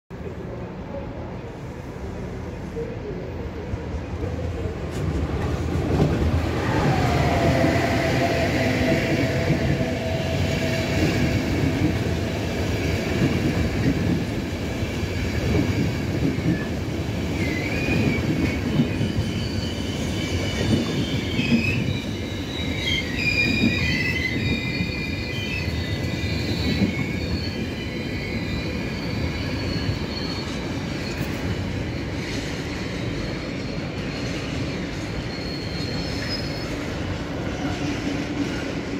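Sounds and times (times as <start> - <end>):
train wheels rumbling on track: 0.1 - 38.9
high-pitched wheel squeal: 17.4 - 37.2.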